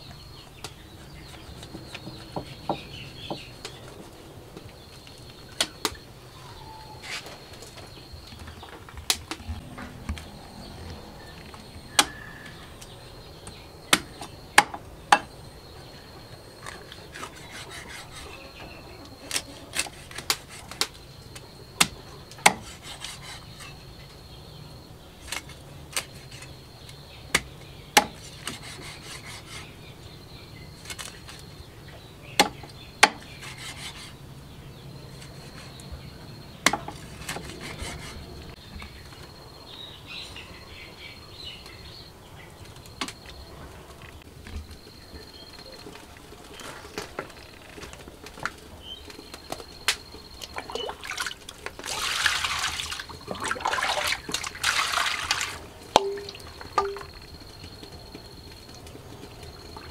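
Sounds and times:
insect drone: 2.3s - 19.5s, 33.6s - 59.9s.

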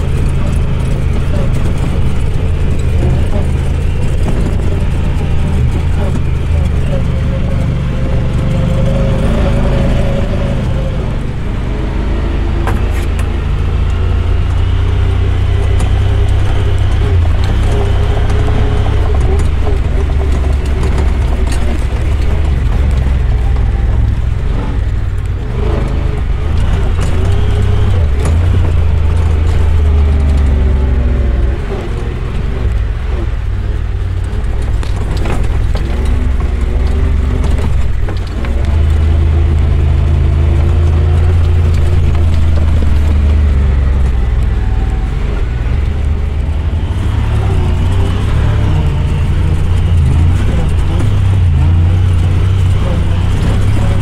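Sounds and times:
off-road vehicle engine revving: 0.0s - 54.0s.

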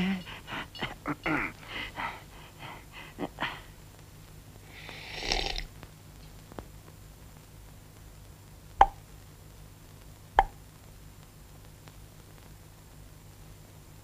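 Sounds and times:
breathy hiss: 0.0s - 5.9s.

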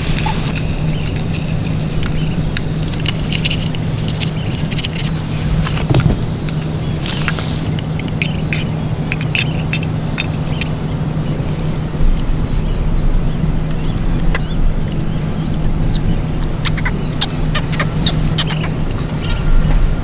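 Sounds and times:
wood fire crackling: 0.0s - 10.8s.

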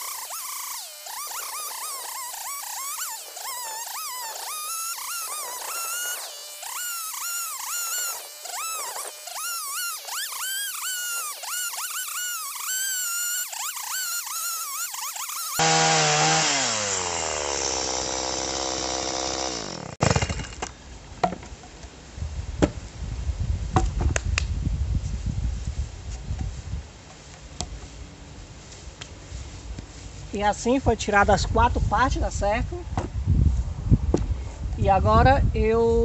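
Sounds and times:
chainsaw running hard: 0.0s - 20.6s.

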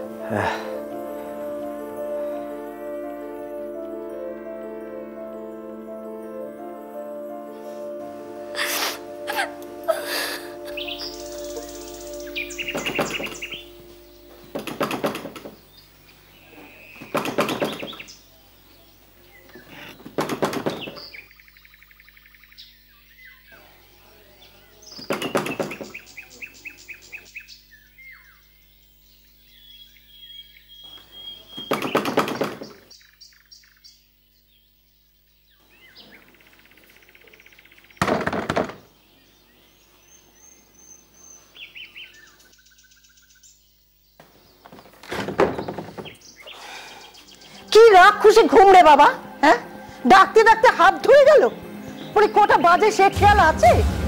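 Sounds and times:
birds chirping and trilling: 0.0s - 54.0s
loud thuds: 38.0s - 38.9s.

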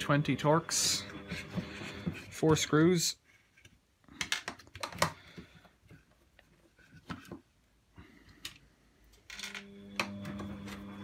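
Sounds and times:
plastic parts clicking: 3.6s - 5.4s.

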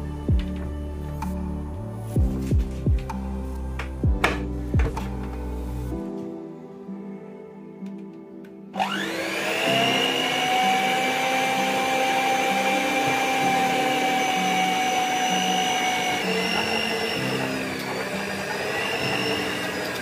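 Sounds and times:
stand mixer motor whining: 8.8s - 20.0s.

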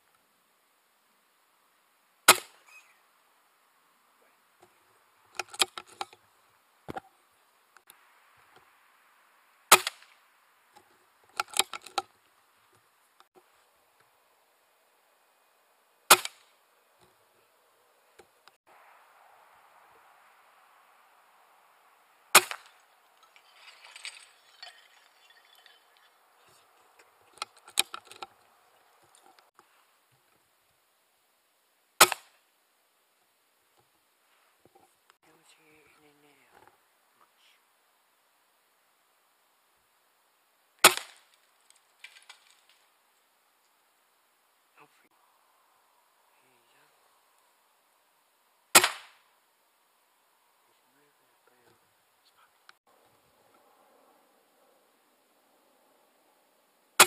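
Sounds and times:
air rifle shots: 48.8s - 49.2s.

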